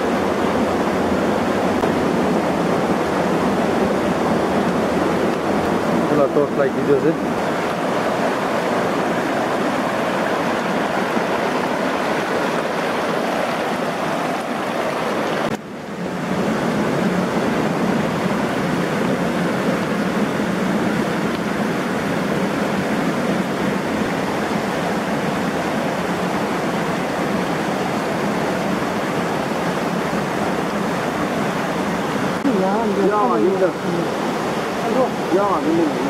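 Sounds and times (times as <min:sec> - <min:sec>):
rushing river water: 0:00.0 - 0:36.0.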